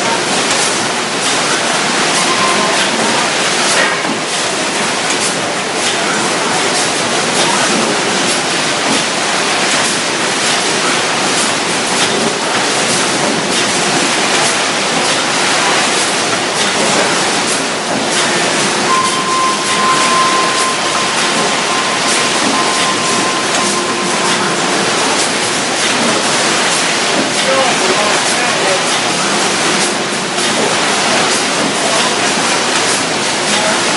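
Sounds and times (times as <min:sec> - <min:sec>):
conveyor line running: 0:00.0 - 0:33.9
steady high whine: 0:17.7 - 0:27.3.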